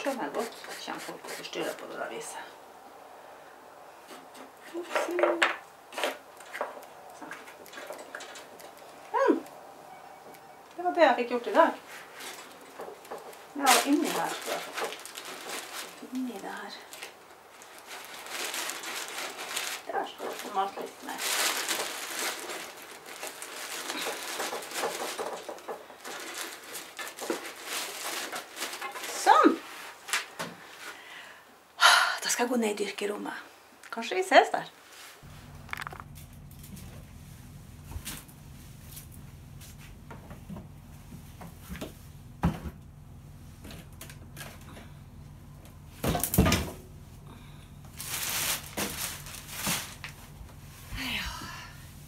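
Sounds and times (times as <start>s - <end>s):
scraper scraping wood: 0.0s - 1.7s
stiff brush scratching: 0.0s - 1.8s
knocks and clatter of handling: 4.1s - 9.0s, 12.2s - 16.0s, 17.9s - 29.3s
rustling: 10.1s - 31.0s, 34.8s - 40.1s, 47.8s - 51.2s.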